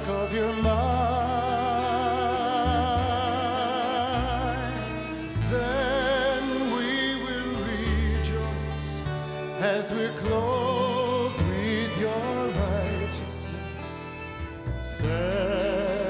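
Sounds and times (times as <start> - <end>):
worship band music: 0.0 - 16.0.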